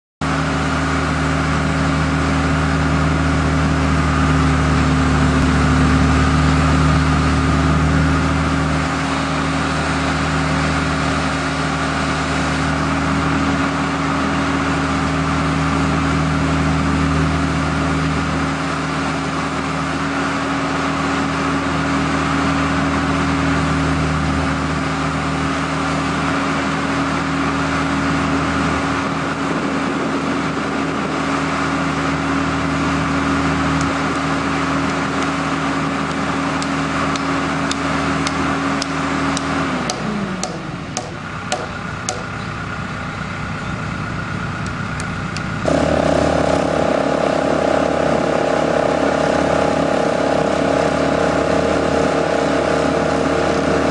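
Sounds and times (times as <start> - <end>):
engine running: 0.2 - 53.9
hydraulic compactor vibrating: 33.0 - 53.9.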